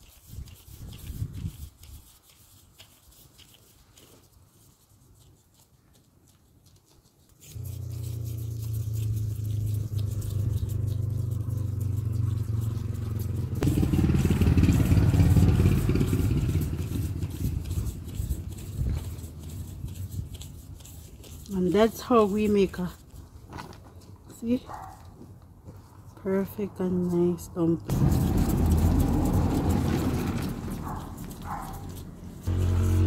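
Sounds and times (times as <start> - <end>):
engine running steadily: 7.5 - 19.7, 27.9 - 33.0.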